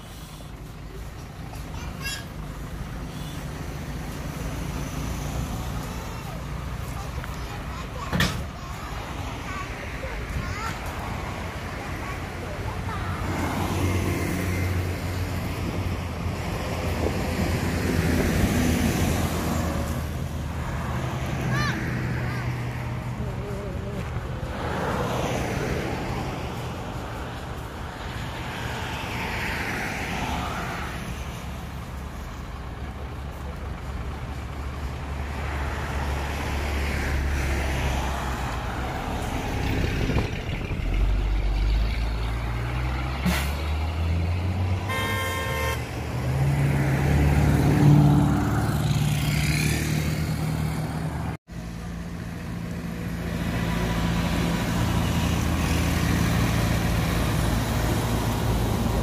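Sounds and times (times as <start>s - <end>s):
traffic passing: 0.0s - 59.0s
heavy engine running: 31.0s - 44.3s
vehicle horn toot: 44.9s - 45.8s.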